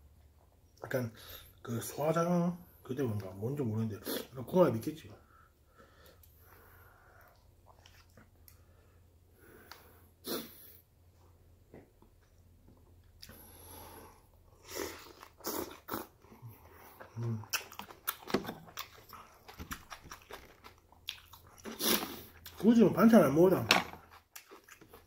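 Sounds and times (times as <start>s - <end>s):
wet chewing with mouth clicks: 7.1s - 8.7s, 14.9s - 22.7s, 23.8s - 25.0s
slurping from a spoon: 21.6s - 22.5s.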